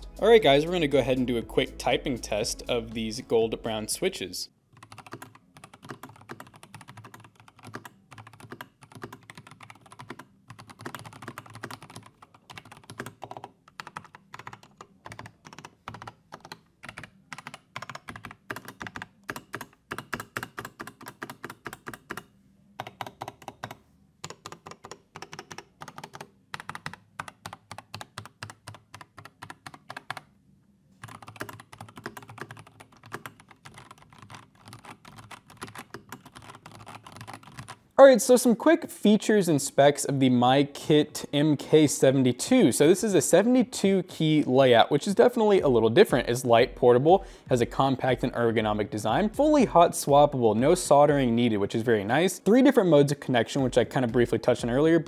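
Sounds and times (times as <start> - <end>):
mechanical keyboard typing: 4.7 - 30.3, 31.0 - 37.8.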